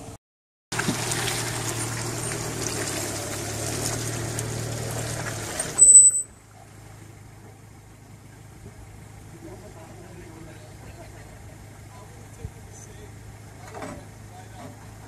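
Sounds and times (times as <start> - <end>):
tyres splashing through mud: 0.0 - 7.0
engine running: 0.0 - 15.0.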